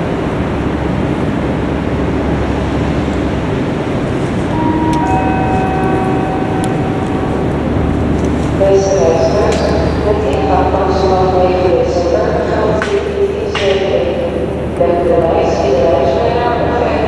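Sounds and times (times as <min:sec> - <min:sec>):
train rumbling: 0:00.0 - 0:17.0
high-pitched train squeal: 0:04.5 - 0:10.1.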